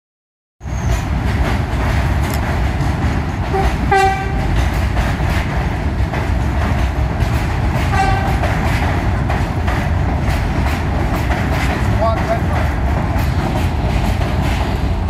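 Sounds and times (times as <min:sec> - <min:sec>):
train wheels rumbling on rails: 0:00.6 - 0:15.0
train horn toots: 0:03.5 - 0:04.5, 0:07.9 - 0:08.5.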